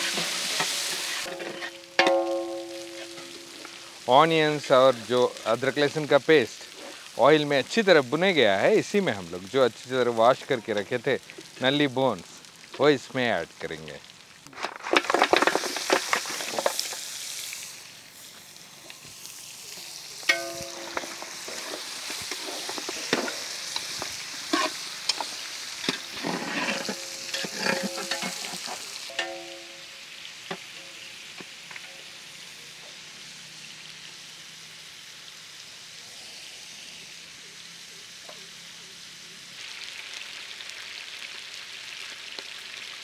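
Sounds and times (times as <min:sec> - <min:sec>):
metal spatula scraping pot: 0:00.0 - 0:03.7, 0:20.3 - 0:29.8
bones clattering into pot: 0:00.0 - 0:03.8, 0:14.5 - 0:17.0, 0:20.3 - 0:29.9
oil sizzling: 0:00.0 - 0:43.0.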